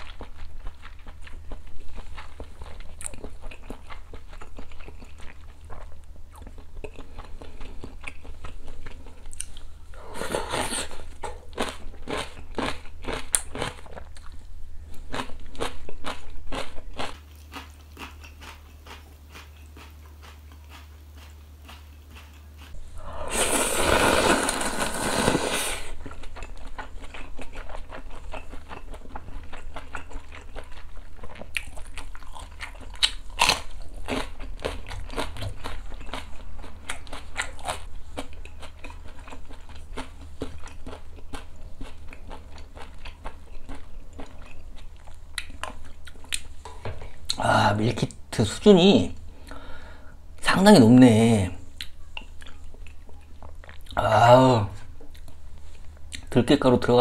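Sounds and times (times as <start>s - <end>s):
person chewing noodles: 0.0s - 47.4s, 51.7s - 54.2s
loud drawn-out slurp: 23.0s - 26.0s.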